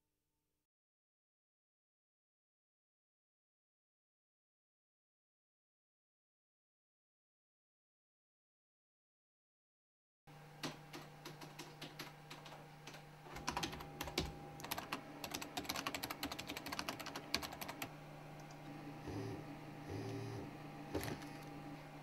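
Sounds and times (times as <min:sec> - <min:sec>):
steady low hum: 0:10.3 - 0:22.0
typing on computer keyboard: 0:10.6 - 0:17.9
phone vibrating on wooden desk: 0:19.0 - 0:21.4.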